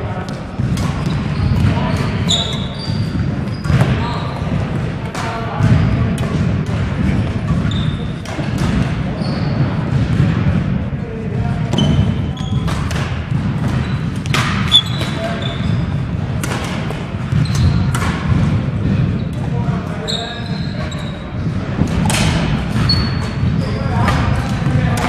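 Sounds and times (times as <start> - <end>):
shoe squeaks: 1.0 - 4.5, 7.6 - 8.2, 9.2 - 9.7, 11.7 - 12.7, 13.7 - 16.0, 17.3 - 17.9, 20.0 - 21.4, 22.8 - 23.9
racket striking shuttlecock: 12.5 - 15.3, 16.4 - 19.4, 21.8 - 23.4.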